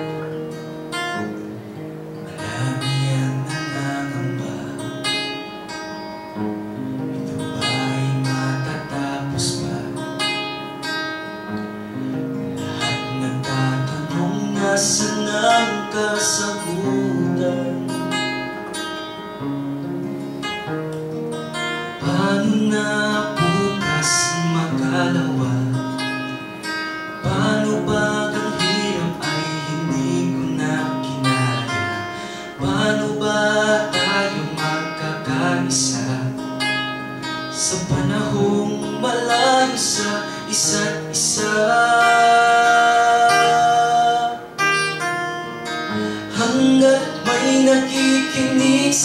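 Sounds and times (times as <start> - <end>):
acoustic guitar strumming: 0.0 - 49.0
person singing: 2.1 - 5.4, 7.3 - 10.4, 12.6 - 18.6, 21.8 - 26.5, 27.2 - 45.1, 45.7 - 49.0
cajon beat: 20.9 - 43.8.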